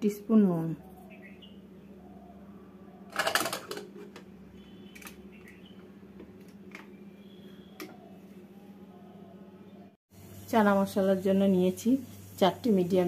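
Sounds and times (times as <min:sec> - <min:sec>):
metal lid scraping and clattering: 0:03.1 - 0:04.2.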